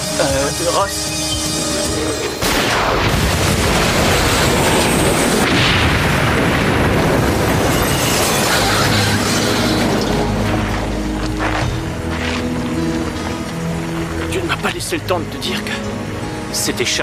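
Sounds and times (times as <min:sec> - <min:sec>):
fire roaring: 0:01.5 - 0:14.8
car explosion blast: 0:02.4 - 0:10.1.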